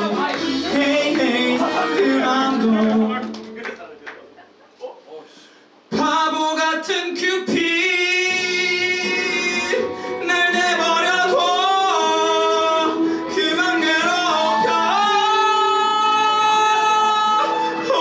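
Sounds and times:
man singing a ballad: 0.0s - 3.3s, 5.9s - 18.0s
musical accompaniment: 0.0s - 3.6s, 7.5s - 18.0s.

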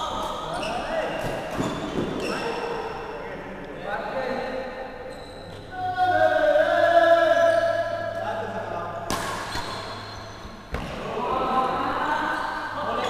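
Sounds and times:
sports hall hum: 0.0s - 13.0s
badminton racket hitting shuttlecock: 9.0s - 10.9s.

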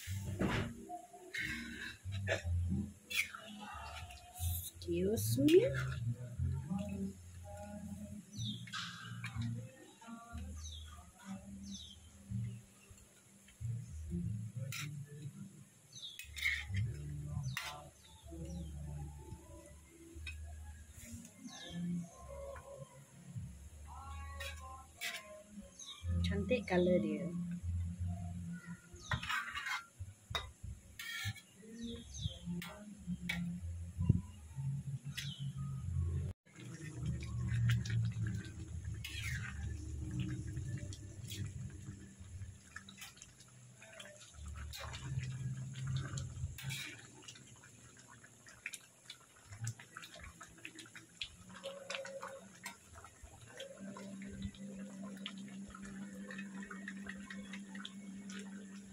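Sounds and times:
metal spatula scraping wok: 3.1s - 4.0s, 14.7s - 14.9s, 24.4s - 25.2s, 29.0s - 31.6s, 39.0s - 40.3s, 46.6s - 47.0s
low hum: 31.9s - 43.0s.

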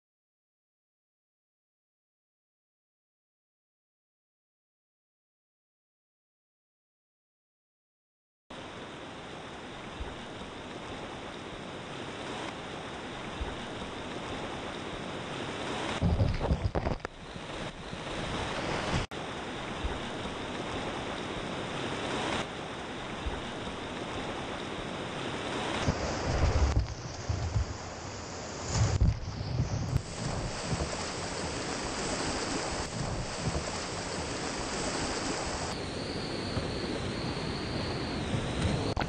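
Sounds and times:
water splashing over camera: 25.5s - 35.8s
whitewater rapids rushing: 30.1s - 35.8s.

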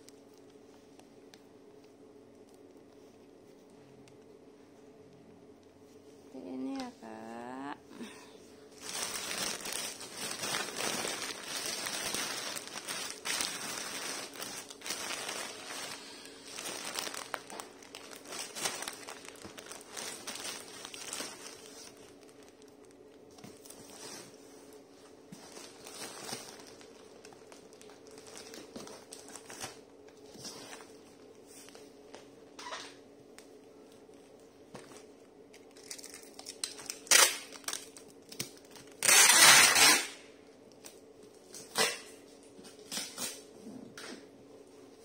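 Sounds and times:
plastic packaging crinkling: 8.0s - 31.8s, 34.0s - 43.4s.

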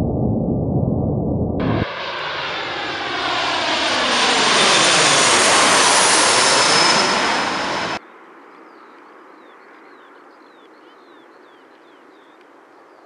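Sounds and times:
jet airliner roar: 0.0s - 8.0s
low rumble: 0.0s - 8.0s.

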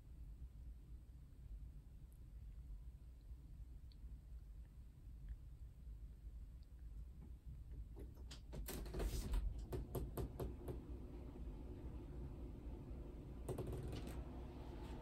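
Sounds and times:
light clicks and knocks: 13.4s - 14.3s.

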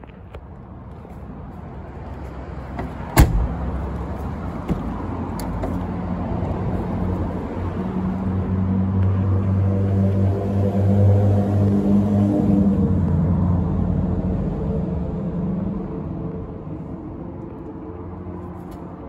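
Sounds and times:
low vehicle drone: 0.0s - 19.0s
car door shutting: 2.8s - 3.7s.

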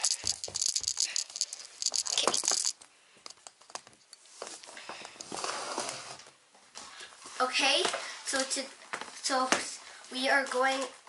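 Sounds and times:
camera handling rattle: 0.0s - 4.2s.

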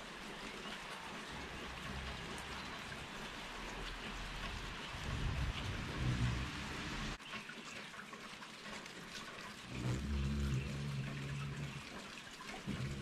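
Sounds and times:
rain hiss: 0.0s - 7.2s, 8.6s - 13.0s
hummingbird wings humming: 1.4s - 7.2s, 9.6s - 13.0s.

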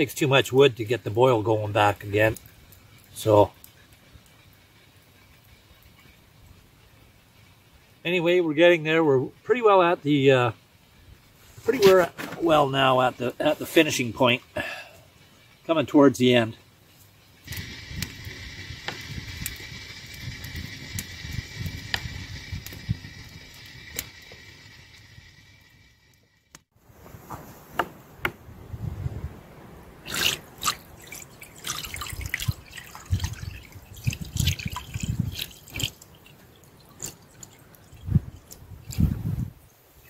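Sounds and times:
steady hiss of boiling pot: 0.0s - 26.7s
syrup splashing and trickling: 30.0s - 39.2s.

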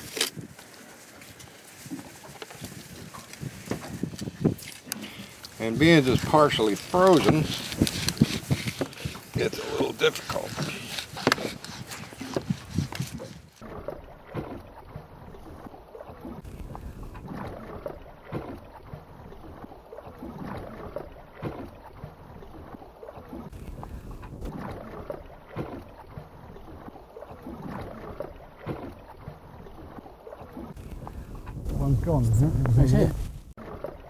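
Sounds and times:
waves slapping boat hull: 0.0s - 34.0s
wind: 0.0s - 34.0s.

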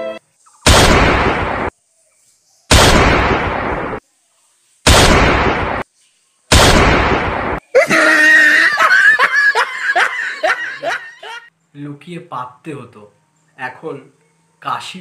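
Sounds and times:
explosion sound effect blasts: 0.7s - 1.7s, 2.7s - 4.0s, 4.9s - 5.8s, 6.5s - 7.6s
high giggling laugh: 7.7s - 11.5s.

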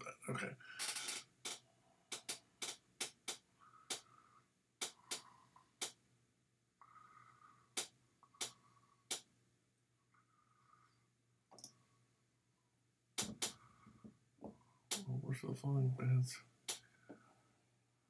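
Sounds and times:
sharp clicks: 0.8s - 4.2s, 4.8s - 6.0s, 7.7s - 9.3s, 16.7s - 16.9s.

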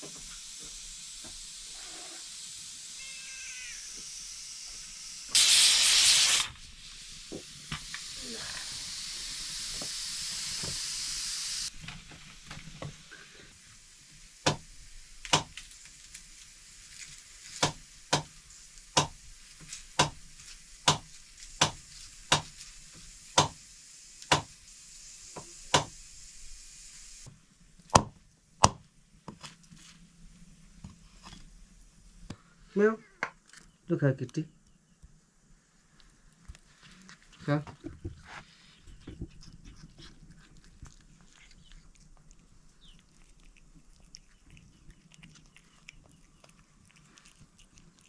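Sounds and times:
hot pan sizzling: 0.0s - 27.3s
knife chopping on a board: 21.6s - 22.5s, 23.4s - 23.6s.

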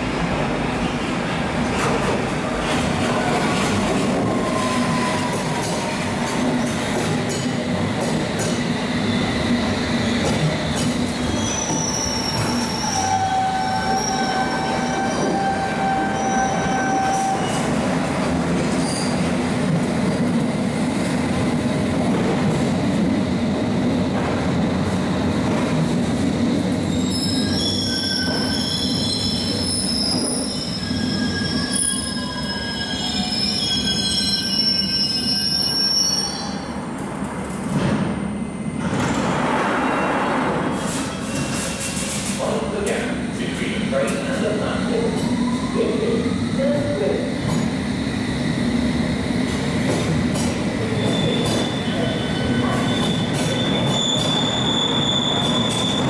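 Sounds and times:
train running through station: 0.0s - 56.0s
train wheel squeal: 4.3s - 5.8s, 10.7s - 17.7s, 18.8s - 19.2s, 26.9s - 36.7s, 39.7s - 42.3s, 50.9s - 56.0s.

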